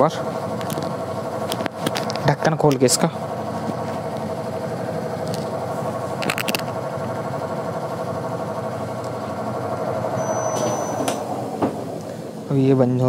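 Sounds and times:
washing machine humming: 0.0 - 13.0
thin high tone: 10.1 - 11.1.

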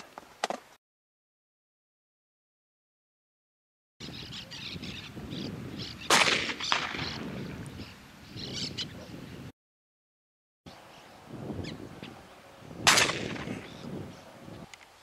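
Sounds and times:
birds chirping and calling: 4.0 - 9.5, 10.7 - 14.7
shotgun shot: 6.1 - 7.2, 12.8 - 13.7.

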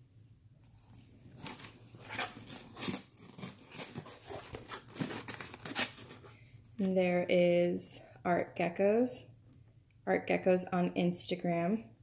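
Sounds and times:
cardboard box being opened: 0.7 - 6.4.

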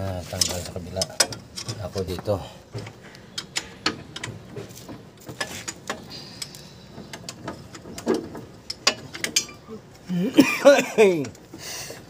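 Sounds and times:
hand tools clinking on metal: 8.6 - 9.8.

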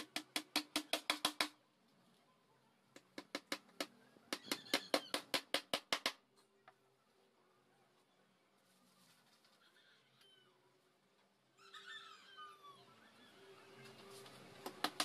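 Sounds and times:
hammer driving nails into wood: 0.0 - 1.6.

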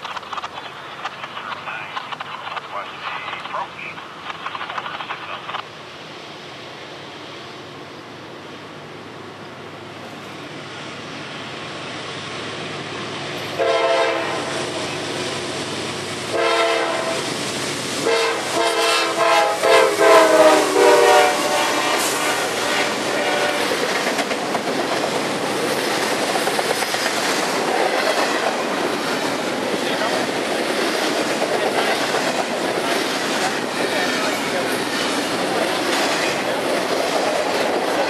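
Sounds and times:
wheel and rail clickety-clack: 0.0 - 5.7, 21.1 - 38.0
freight train passing: 0.0 - 38.0
locomotive chime horn blasts: 13.6 - 14.8, 16.4 - 17.2, 18.1 - 23.6.

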